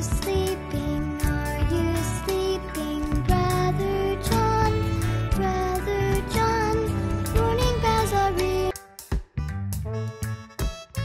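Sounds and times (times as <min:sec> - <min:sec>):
background music with a beat: 0:00.0 - 0:11.0.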